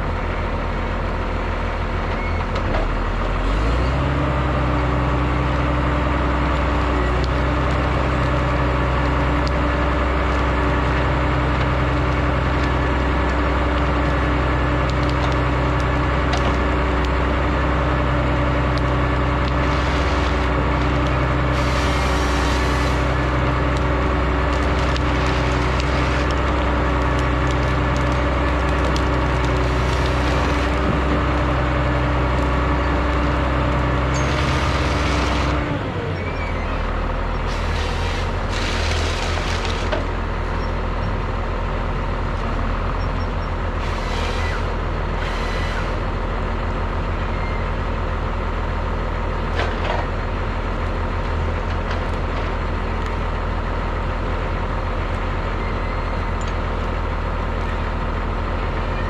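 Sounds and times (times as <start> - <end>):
diesel engine running: 0.0 - 59.0
wood cracking and splintering: 6.2 - 35.7, 37.5 - 40.2.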